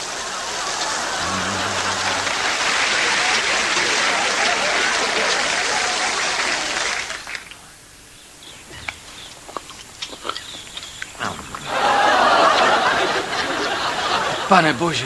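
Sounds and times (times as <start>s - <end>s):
audience laughter: 0.0s - 7.0s, 11.7s - 14.8s.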